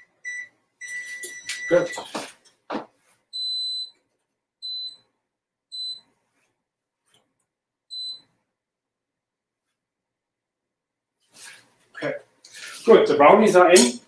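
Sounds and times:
electronic oven beeps: 0.0 - 2.1, 3.3 - 4.0, 4.6 - 5.1, 5.7 - 6.1, 7.9 - 8.3.

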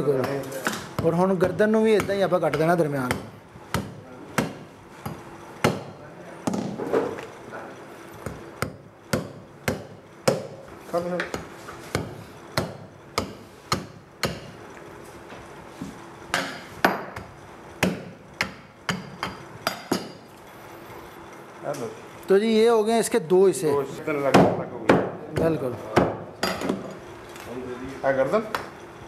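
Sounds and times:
cleaver chopping through bone: 2.0 - 4.6.

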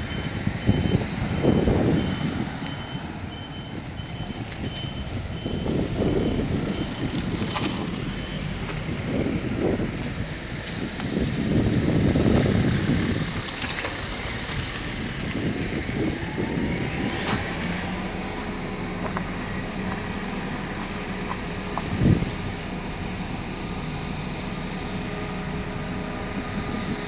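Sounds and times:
road traffic passing: 0.0 - 27.0
wind rumble on microphone: 0.0 - 27.0
whine rising in pitch: 15.4 - 27.0.

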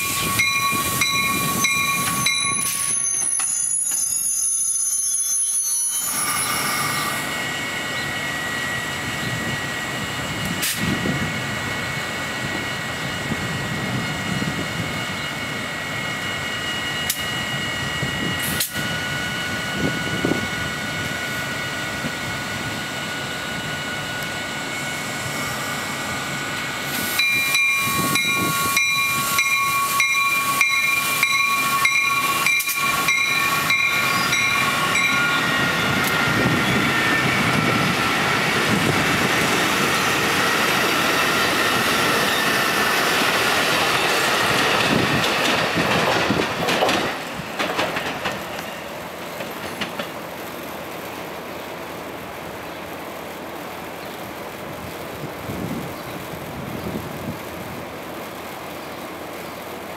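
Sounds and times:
electric train high whine: 0.0 - 59.9
train cars rushing past: 0.0 - 59.9
wheels clicking over rail joints: 44.6 - 50.2.

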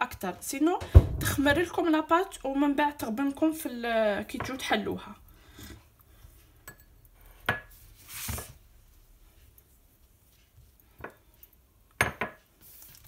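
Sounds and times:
soft brushing sound: 7.7 - 10.8.

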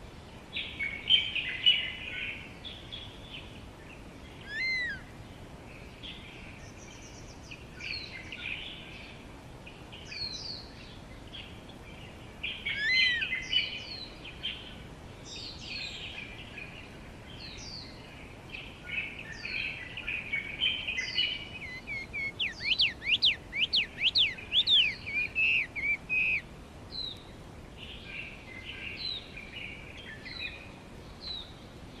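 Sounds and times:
songbirds chirping and whistling: 0.0 - 32.0
rapid sweeping bird notes: 21.0 - 26.4.

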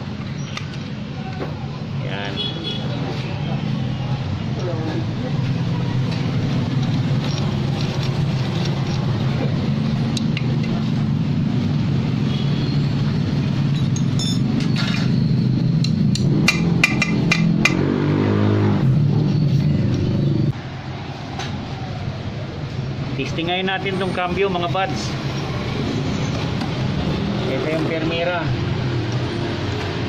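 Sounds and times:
metal gear parts clinking: 13.8 - 15.2.

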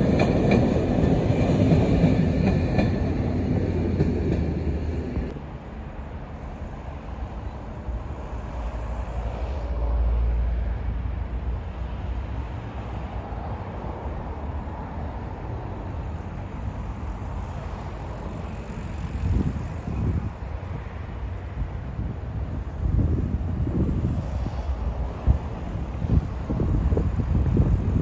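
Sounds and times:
wind buffeting microphone: 13.1 - 28.0.

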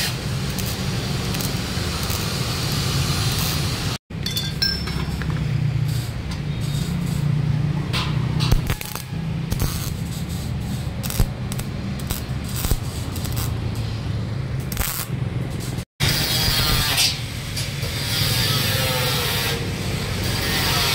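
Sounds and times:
welding arc crackling hiss: 0.0 - 4.0, 5.7 - 7.4, 8.5 - 14.0, 14.6 - 20.9.

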